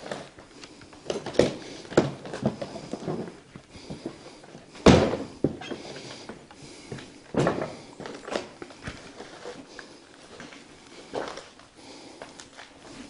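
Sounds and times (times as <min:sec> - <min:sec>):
footsteps crunching over debris: 0:00.0 - 0:13.0
loud thump: 0:04.8 - 0:05.6.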